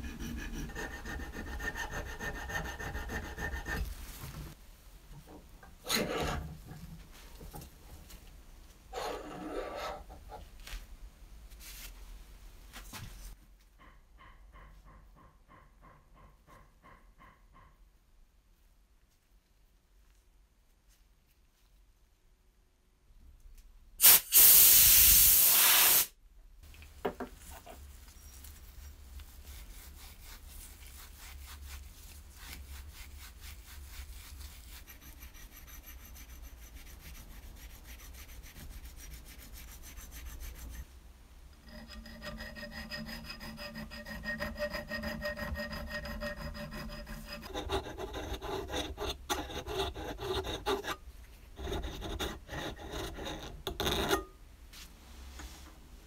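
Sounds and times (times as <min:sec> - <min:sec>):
file scraping metal: 0:00.0 - 0:04.0, 0:05.8 - 0:06.8, 0:08.9 - 0:10.4, 0:34.4 - 0:40.9, 0:41.6 - 0:54.3.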